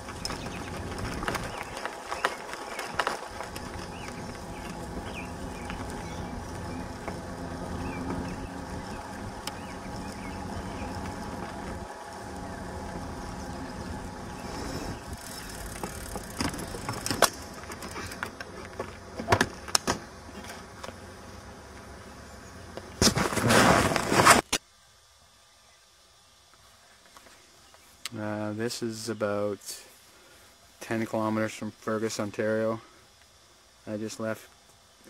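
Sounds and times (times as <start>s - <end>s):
bike knocking and rattling: 0.0s - 21.1s
bike tyres rumbling on trail: 0.0s - 24.5s.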